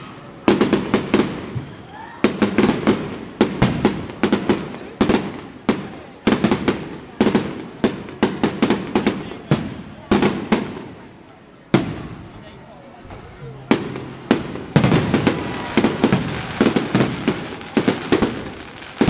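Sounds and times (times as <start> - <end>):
firework shells bursting: 13.7 - 19.0.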